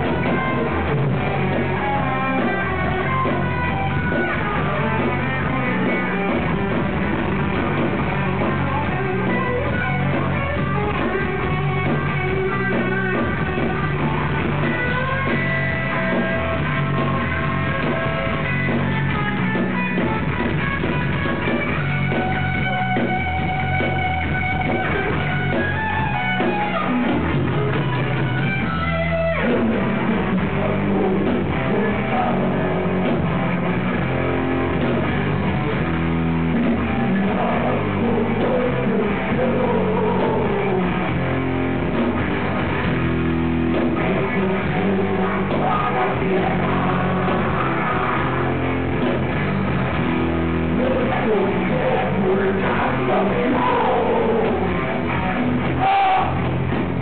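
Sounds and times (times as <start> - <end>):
electric guitar lead with held notes: 0.0 - 57.0
heavy metal band playing live: 0.0 - 57.0.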